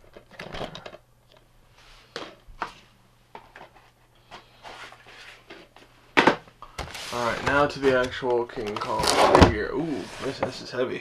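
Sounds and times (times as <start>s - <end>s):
cardboard packaging rustling: 6.8s - 10.5s.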